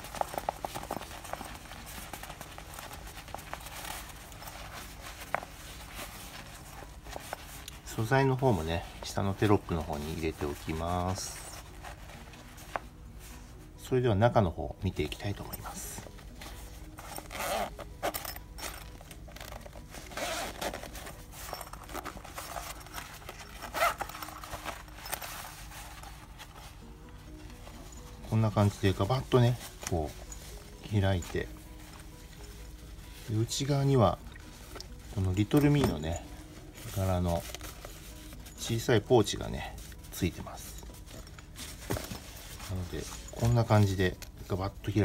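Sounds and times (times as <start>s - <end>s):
fabric rubbing: 0.0s - 45.0s
zipper being pulled open: 16.7s - 26.7s.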